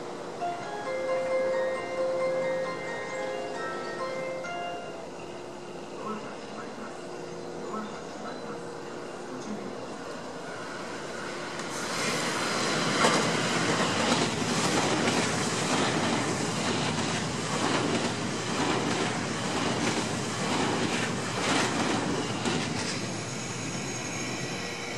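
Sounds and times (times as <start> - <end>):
train wheels clattering over rail joints: 12.9 - 23.0.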